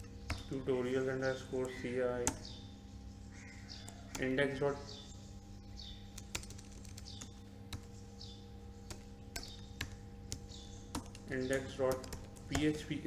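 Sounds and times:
faint electrical hum: 0.0 - 13.0
keyboard keys clicking: 6.1 - 7.9, 8.8 - 12.9.

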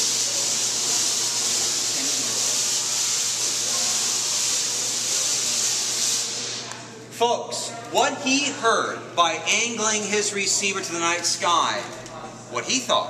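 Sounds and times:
tesla coil sparks hissing: 0.0 - 6.8.

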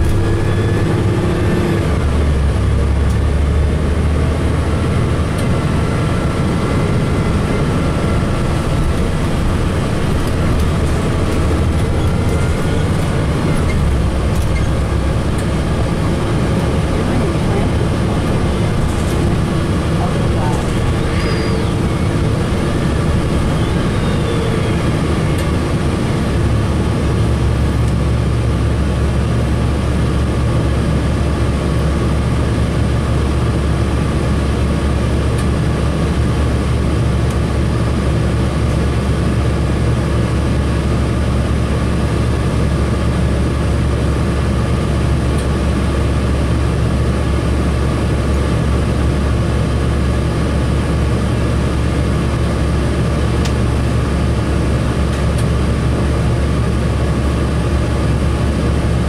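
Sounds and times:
bus engine running: 0.0 - 59.0.

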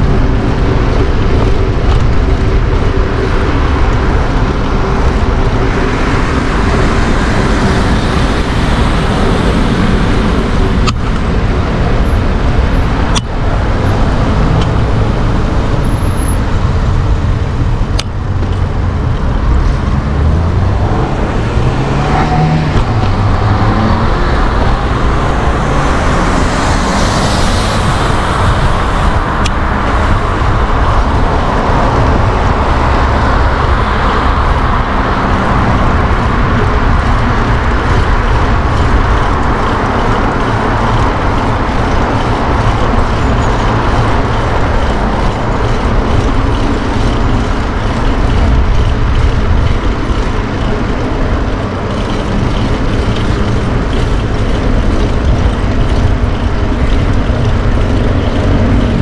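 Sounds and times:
street traffic rumble: 0.0 - 59.0
vehicle accelerating past: 18.9 - 29.1.

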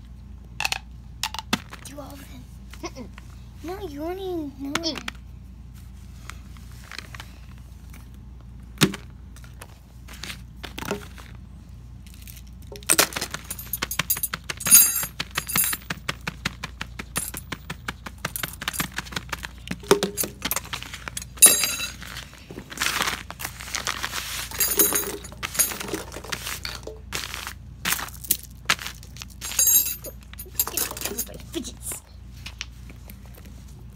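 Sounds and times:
plastic toys clicking and clattering: 24.5 - 27.4, 28.0 - 31.7.

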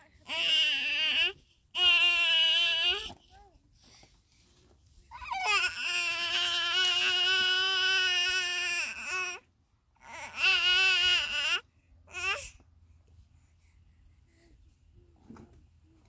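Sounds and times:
baby crying: 5.2 - 9.4, 10.0 - 12.5.

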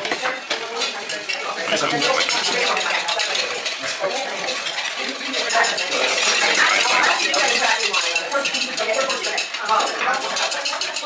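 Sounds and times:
utensils clinking on dishes: 0.0 - 11.0.

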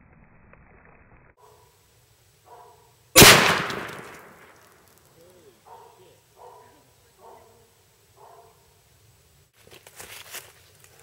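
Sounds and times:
rifle shot crack: 3.2 - 4.7.

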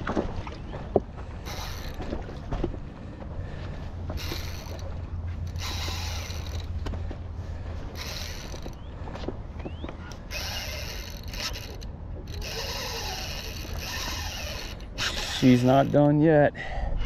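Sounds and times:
fishing reel whirring: 1.4 - 2.1, 4.1 - 6.9, 7.9 - 8.9, 10.1 - 16.0.

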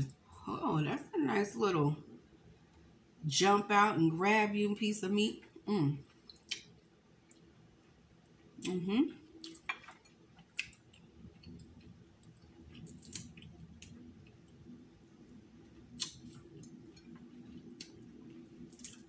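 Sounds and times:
faint low hum: 0.0 - 19.0
shellfish shell cracking: 9.4 - 14.3, 15.9 - 19.0.

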